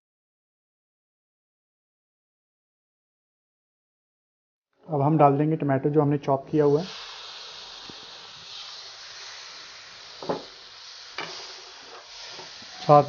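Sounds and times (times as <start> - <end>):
tomatoes sizzling in pan: 6.7 - 13.0.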